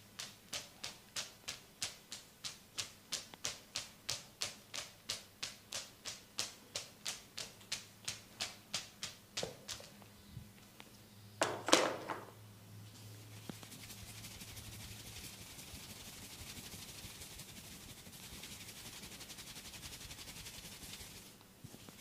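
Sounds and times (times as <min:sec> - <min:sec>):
hands tapping body: 0:00.2 - 0:09.9.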